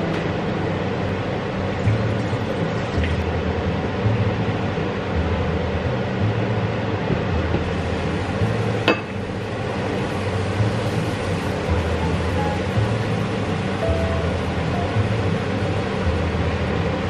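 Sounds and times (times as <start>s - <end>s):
food sizzling in a pan: 7.6s - 16.4s.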